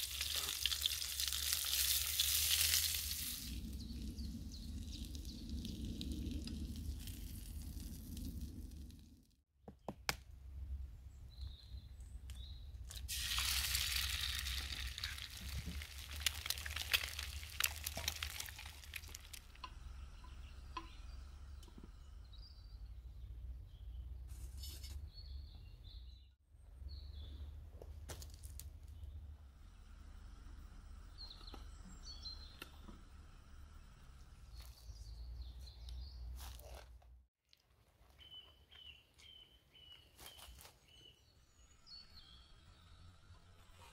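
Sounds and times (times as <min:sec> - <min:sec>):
food sizzling in a frying pan: 0:00.0 - 0:03.5, 0:13.1 - 0:19.1
bird chirps: 0:31.0 - 0:33.1.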